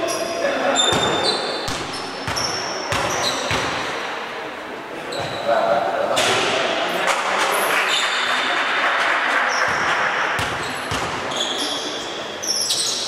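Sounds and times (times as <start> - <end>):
sports hall background noise: 0.0 - 13.0
basketball bouncing on gym floor: 0.9 - 3.9, 9.6 - 11.4.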